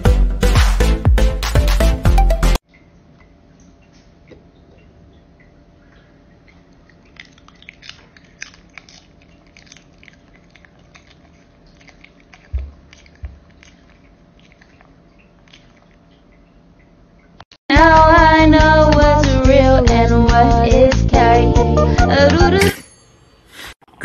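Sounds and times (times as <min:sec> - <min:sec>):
dog crunching cucumber: 0:06.5 - 0:16.1.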